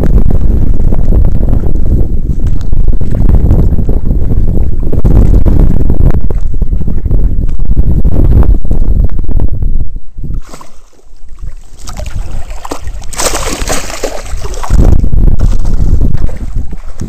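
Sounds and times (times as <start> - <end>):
wind buffeting microphone: 0.0 - 17.0
water sloshing and splashing: 10.4 - 17.0.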